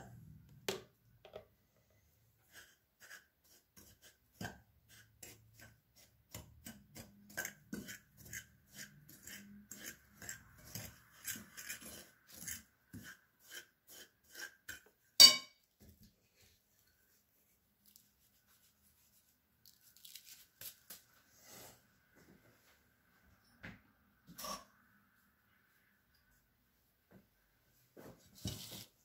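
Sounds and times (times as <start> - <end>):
metal spoon clinking glass bowl: 15.2 - 15.6.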